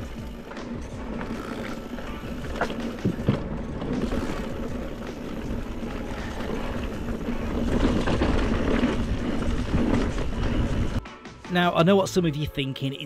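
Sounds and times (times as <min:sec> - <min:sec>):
bike knocks and rattles: 0:00.0 - 0:11.0
bike tyre noise on dirt: 0:00.0 - 0:11.0.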